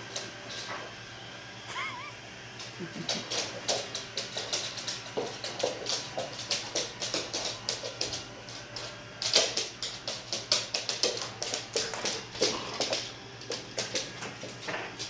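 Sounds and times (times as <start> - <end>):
dog claws clicking on wood floor: 0.0 - 1.0, 2.6 - 15.0.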